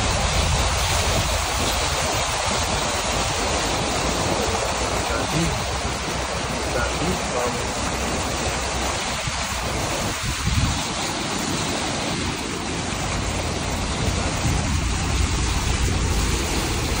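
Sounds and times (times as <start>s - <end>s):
low road rumble: 0.0s - 17.0s
tyres hissing through water: 0.0s - 17.0s.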